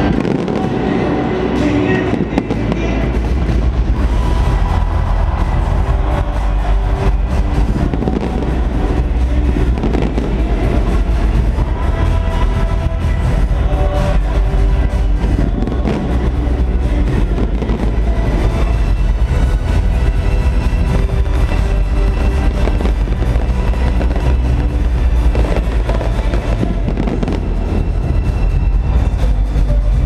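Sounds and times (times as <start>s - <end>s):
fireworks bangs and crackles: 0.0s - 29.8s
loud music playing: 0.0s - 30.0s
low rumble: 0.0s - 30.0s.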